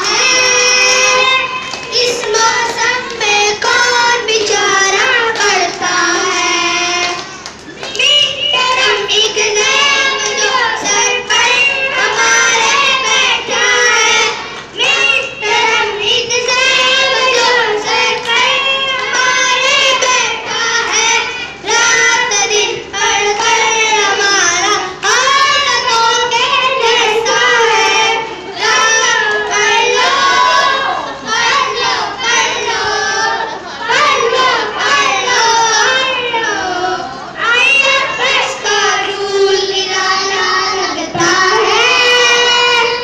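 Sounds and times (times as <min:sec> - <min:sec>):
boys singing: 0:00.0 - 0:43.0.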